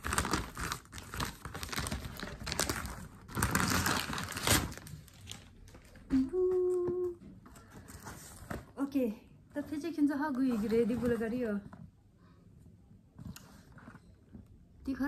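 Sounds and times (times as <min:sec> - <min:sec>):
wrapping paper crinkling: 0:00.0 - 0:06.0.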